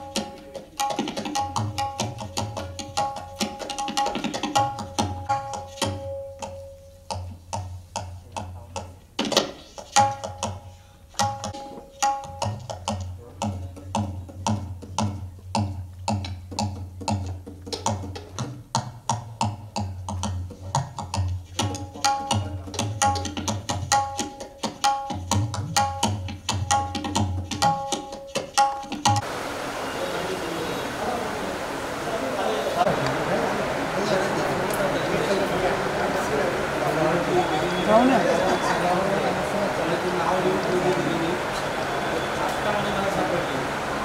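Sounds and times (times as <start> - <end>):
tabla playing: 0.0 - 31.1.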